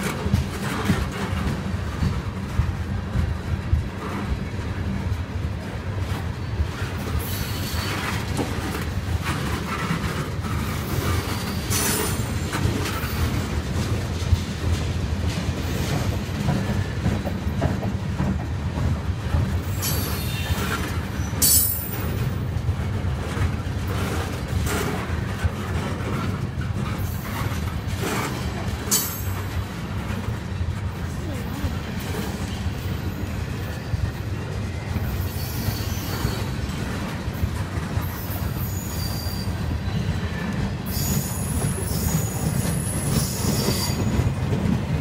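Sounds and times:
train clatter: 0.0s - 45.0s
train wheels rumbling on rails: 0.0s - 45.0s
high-pitched wheel squeals: 35.1s - 36.6s, 38.1s - 40.1s, 40.9s - 44.1s.

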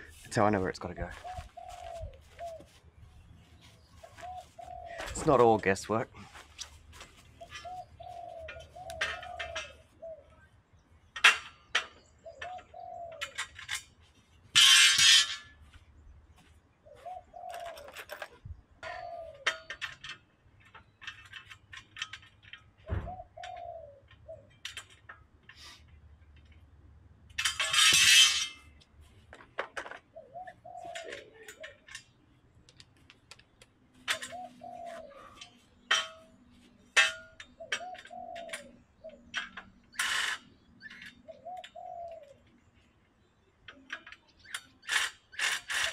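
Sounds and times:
dove cooing: 1.1s - 2.8s, 4.0s - 5.3s, 7.4s - 10.4s, 12.2s - 13.4s, 16.8s - 18.1s, 18.8s - 19.6s, 22.9s - 24.5s, 30.1s - 31.9s, 34.1s - 35.6s, 37.5s - 39.3s, 41.2s - 42.4s.

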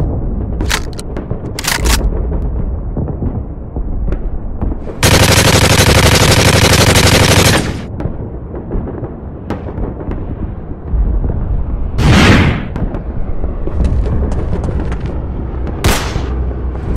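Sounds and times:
low rumbling battle background: 0.0s - 16.9s
machine-gun fire: 5.0s - 7.9s.

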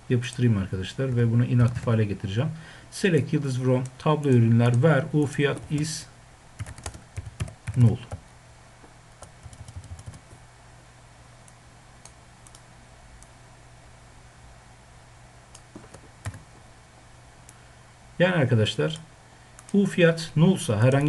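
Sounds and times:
steady low hum: 0.0s - 21.0s
computer keyboard keystrokes: 6.6s - 8.2s, 9.2s - 10.3s, 15.6s - 16.4s.

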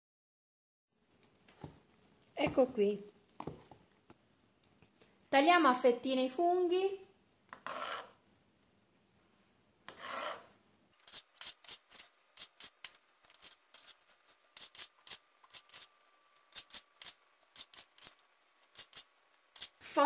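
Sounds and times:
knife rasping through mushroom: 11.0s - 15.9s, 16.5s - 19.8s.

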